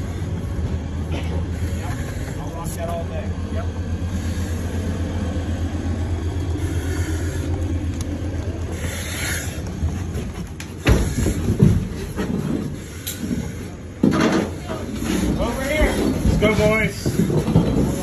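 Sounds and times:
diesel engine rumbling: 0.0s - 18.0s
irregular knocks and bumps: 9.6s - 18.0s.

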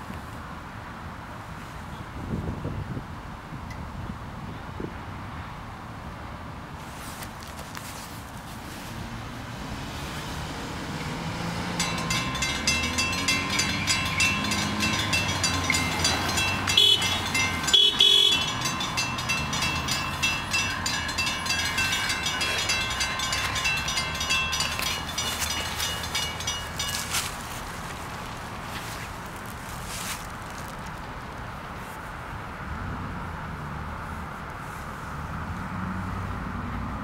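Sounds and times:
crossing warning bells ringing: 10.9s - 29.5s
locomotive horn blasts: 12.0s - 25.7s.

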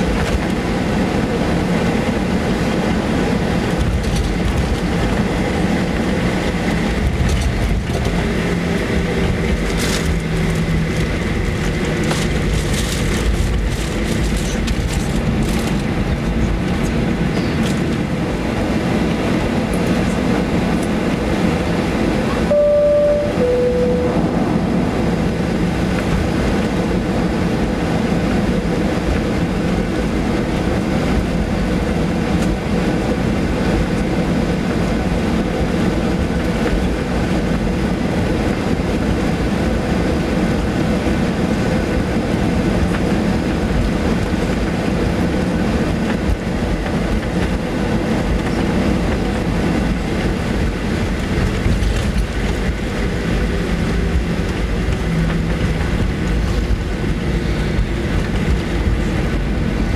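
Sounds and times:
airplane cabin engine hum: 0.0s - 59.9s
two-tone cabin chime: 22.5s - 24.6s.

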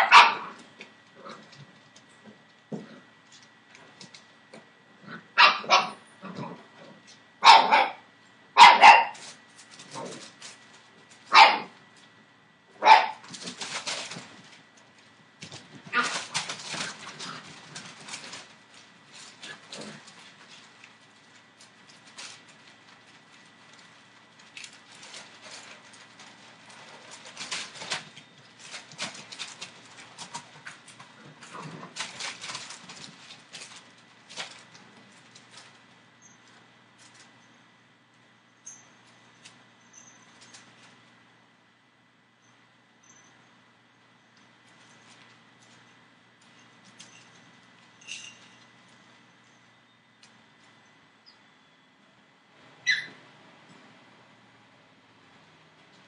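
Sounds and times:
puppies barking: 0.0s - 0.6s, 5.3s - 6.0s, 7.4s - 9.2s, 11.3s - 11.8s, 12.8s - 13.9s, 52.8s - 53.2s
puppy paws tapping and scraping: 0.0s - 4.7s, 8.6s - 12.2s, 12.8s - 37.6s, 38.6s - 41.2s, 44.3s - 50.8s.

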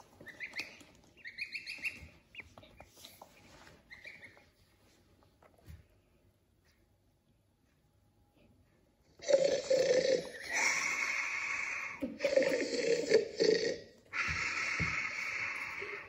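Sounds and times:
loud snoring: 9.2s - 11.1s.

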